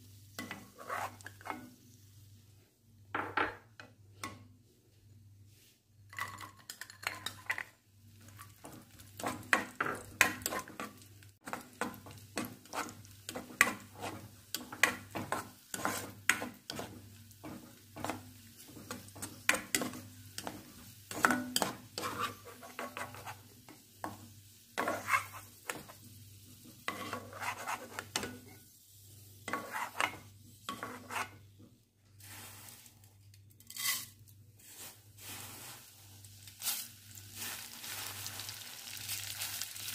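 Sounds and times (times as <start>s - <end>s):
light sizzle of frying: 0.0s - 39.9s
spatula scraping a pan: 0.4s - 1.7s, 8.3s - 24.2s, 24.8s - 26.0s, 26.7s - 28.6s, 29.4s - 31.5s.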